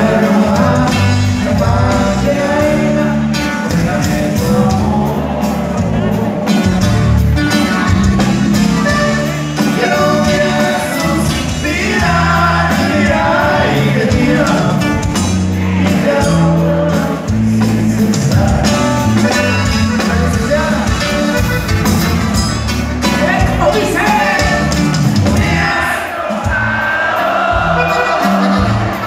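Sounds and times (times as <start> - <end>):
bass: 0.0 - 26.9, 27.5 - 29.0
drums: 0.0 - 29.0
button accordion: 6.8 - 14.4, 19.0 - 22.8, 27.6 - 29.0
person singing: 9.6 - 21.5.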